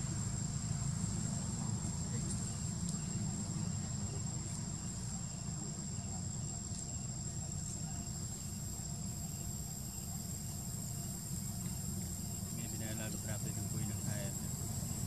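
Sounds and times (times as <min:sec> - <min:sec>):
insects droning: 0:00.0 - 0:15.0
faint ticks: 0:02.2 - 0:03.1.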